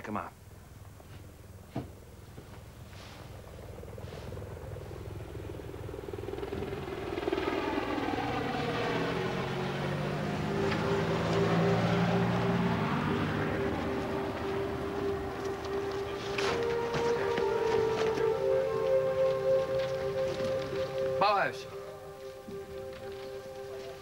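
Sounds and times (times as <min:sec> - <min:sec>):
deeper drone: 0:00.0 - 0:24.0
steady pulsing hum: 0:00.0 - 0:24.0
vehicle engine: 0:00.5 - 0:24.0.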